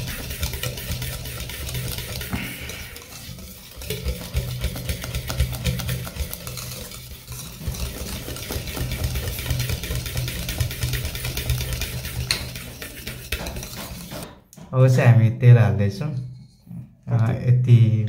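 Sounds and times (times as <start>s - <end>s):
whisk clicking against bowl: 0.0s - 14.3s.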